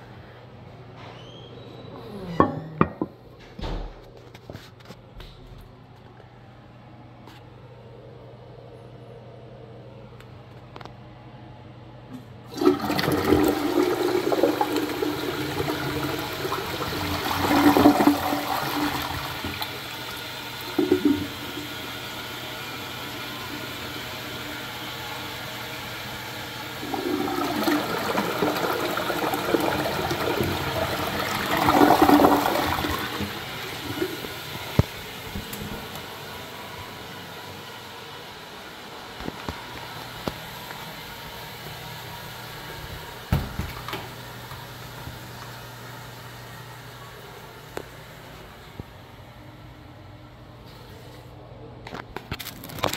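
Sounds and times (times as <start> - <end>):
toilet flushing: 12.5 - 38.5.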